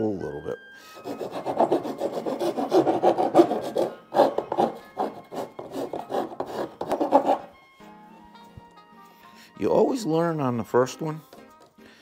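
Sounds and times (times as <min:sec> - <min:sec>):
file rasping in plastic: 0:01.0 - 0:07.5.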